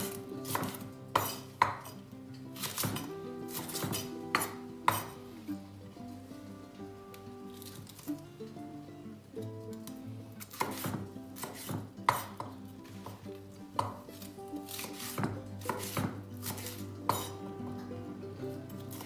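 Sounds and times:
knife slicing on wooden board: 0:02.6 - 0:05.2, 0:10.4 - 0:12.5.

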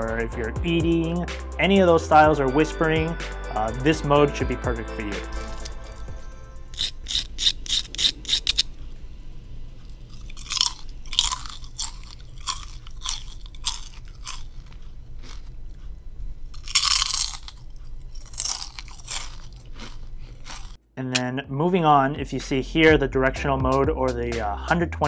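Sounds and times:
potato chips crunching: 0:06.7 - 0:08.7, 0:09.9 - 0:15.8, 0:16.5 - 0:20.8.

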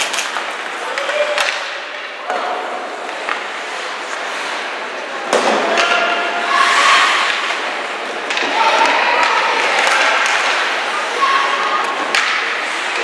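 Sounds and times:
crowd calling out: 0:08.3 - 0:12.0.

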